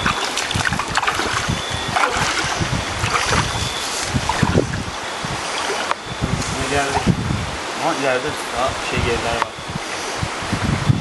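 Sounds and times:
feet splashing in stream: 0.0s - 4.8s, 5.4s - 6.0s
flowing water rushing: 0.0s - 10.5s.

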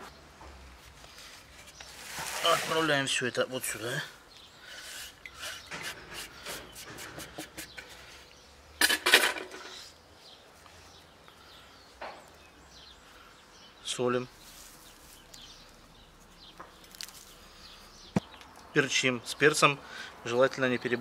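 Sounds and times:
board scraping against pot: 1.6s - 3.0s, 4.8s - 8.1s.

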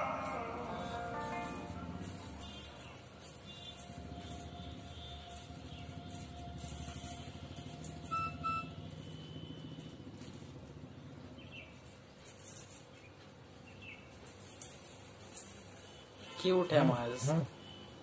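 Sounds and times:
soft background music: 0.0s - 8.9s.

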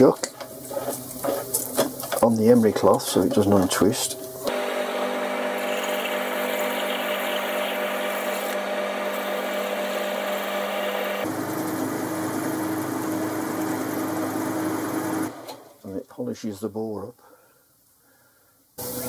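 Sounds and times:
metalworking lathe humming: 4.4s - 15.6s.

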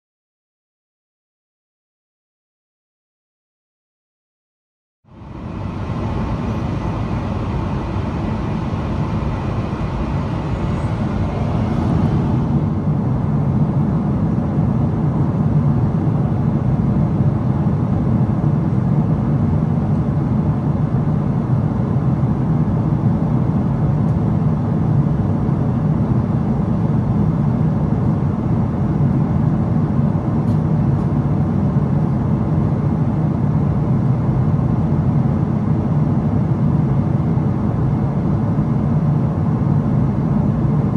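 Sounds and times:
aircraft engine hum: 5.1s - 40.9s
air rushing past fuselage: 5.2s - 14.8s.

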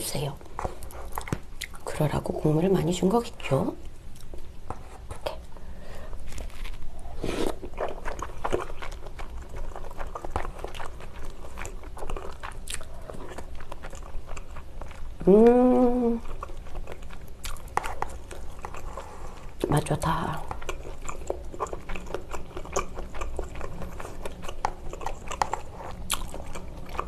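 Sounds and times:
close chewing with mouth clicks: 0.3s - 1.9s, 3.8s - 15.3s, 15.9s - 27.0s
person humming: 15.2s - 16.2s.

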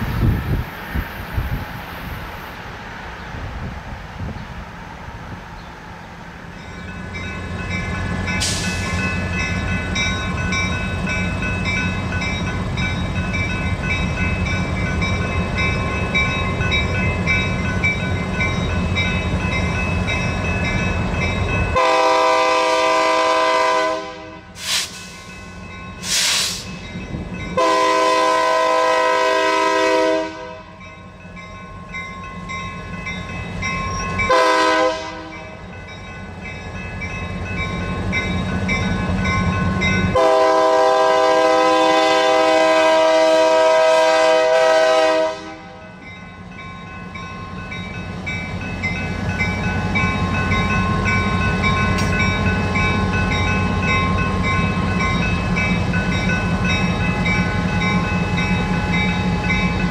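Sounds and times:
train rumbling past: 0.0s - 59.9s
locomotive air horn: 21.8s - 24.9s, 27.6s - 30.7s, 34.3s - 35.4s, 40.1s - 45.8s.

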